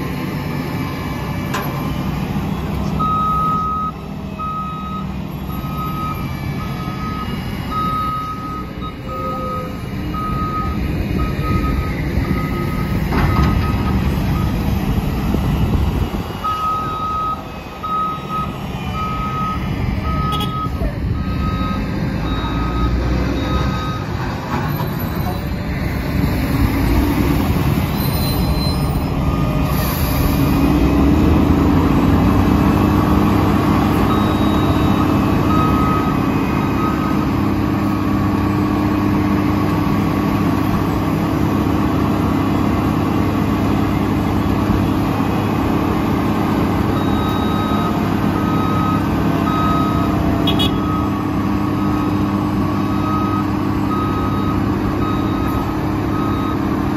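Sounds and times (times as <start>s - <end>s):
garbage truck diesel engine: 0.0s - 56.9s
reversing alarm beeping: 0.8s - 14.7s, 16.4s - 25.3s, 33.4s - 38.1s, 46.8s - 56.9s.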